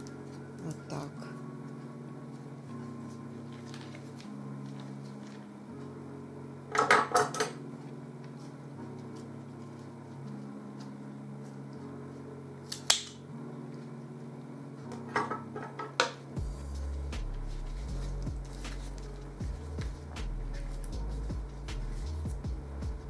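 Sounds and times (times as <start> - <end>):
low steady drone: 16.4 - 23.0.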